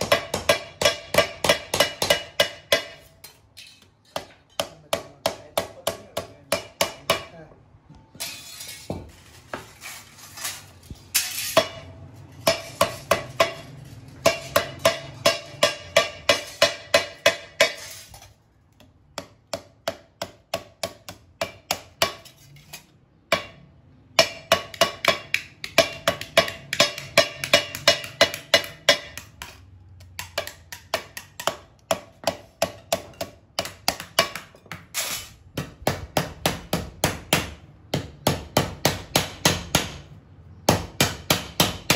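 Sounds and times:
wooden mallet hammering sheet steel: 0.0 - 7.6, 11.1 - 18.3, 19.1 - 41.9.

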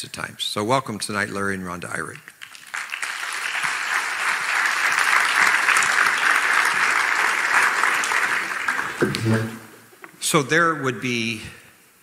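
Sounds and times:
congregation applauding: 2.0 - 9.8.

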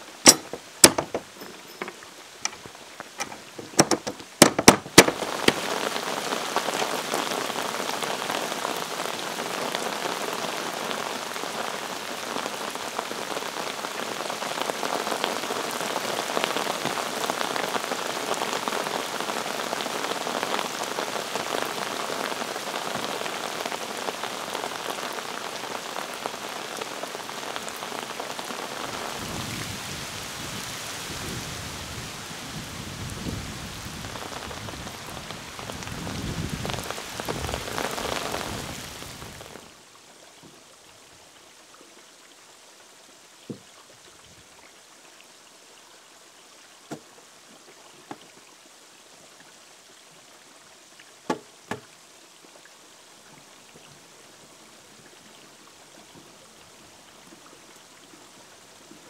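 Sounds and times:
heavy rain on a pond: 0.0 - 59.0
sharp knocks: 0.2 - 5.6, 51.3 - 51.9.

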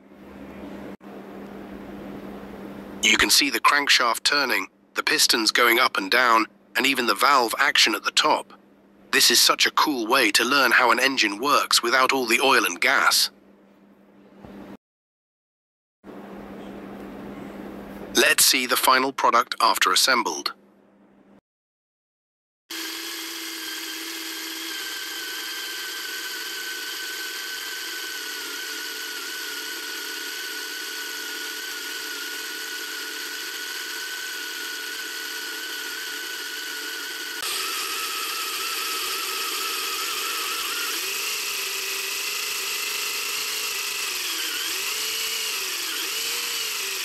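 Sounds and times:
small electric motor whining: 22.7 - 47.0.

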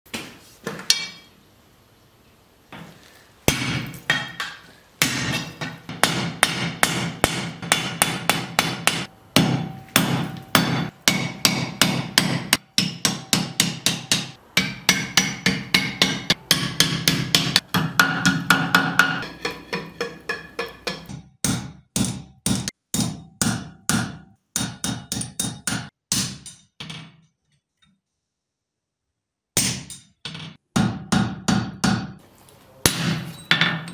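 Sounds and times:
hammer ringing on anvil: 5.2 - 21.2.

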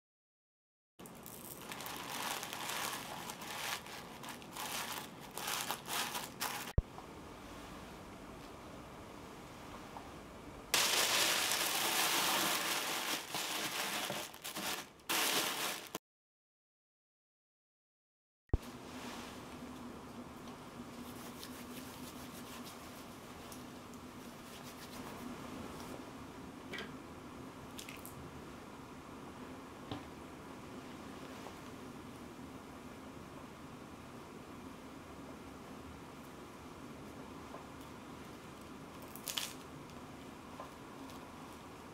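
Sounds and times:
low room hum: 1.0 - 16.0, 18.6 - 41.9
wrapping paper crinkling: 1.1 - 6.8, 10.8 - 16.0.

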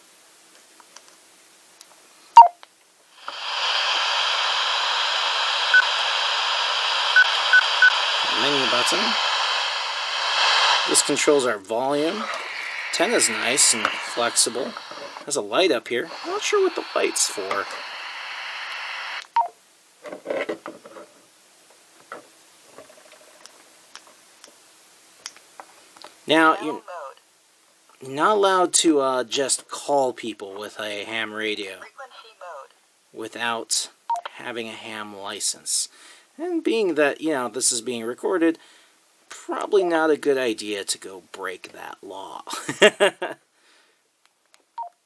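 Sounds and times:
radio static hiss: 3.1 - 25.2, 26.0 - 27.3, 28.0 - 38.7
radio two-note key beep: 7.1 - 8.6.

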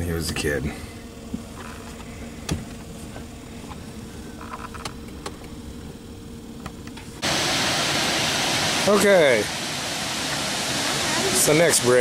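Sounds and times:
water pouring over waterfall: 7.2 - 12.0.

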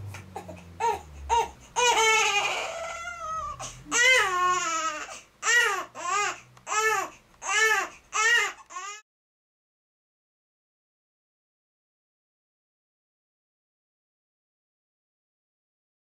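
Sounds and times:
baby crying: 0.3 - 9.0.

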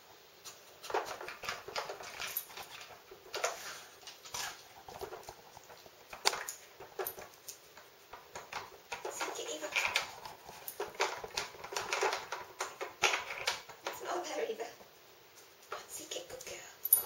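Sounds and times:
dog pawing plastic toy: 0.8 - 14.1.

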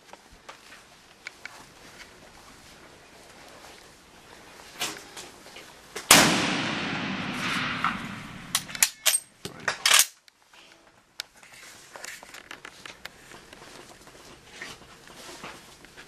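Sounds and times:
rifle shot echoing in tunnel: 6.1 - 8.7.

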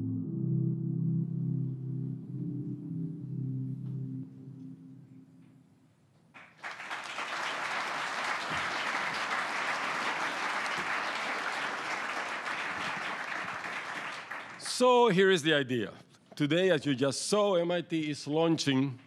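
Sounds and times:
audience applauding: 6.4 - 15.5.

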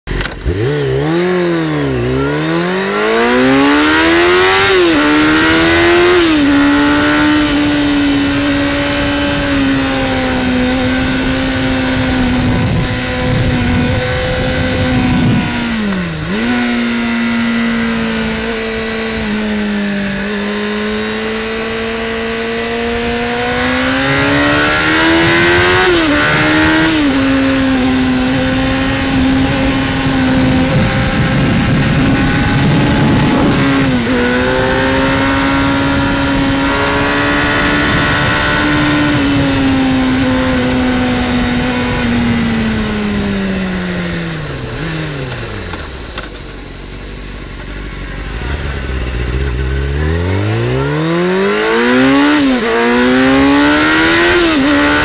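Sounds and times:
motorcycle engine revving: 0.0 - 55.0
wind rush: 1.0 - 20.6, 21.4 - 45.7.

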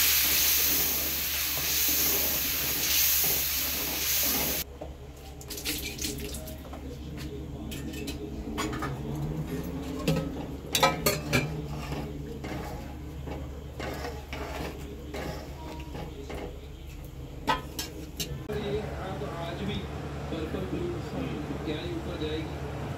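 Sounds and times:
hot pan hissing: 0.0 - 4.7
spatula stirring thick curry: 10.3 - 18.4.

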